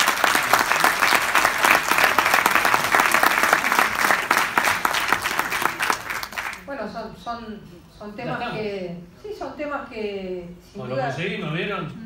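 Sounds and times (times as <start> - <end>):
crowd applauding: 0.0 - 6.7.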